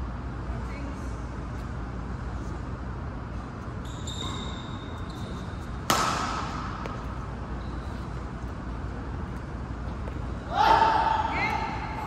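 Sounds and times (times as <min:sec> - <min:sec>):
low hum of hall: 0:00.0 - 0:12.0
racket hitting shuttlecock: 0:05.8 - 0:07.2.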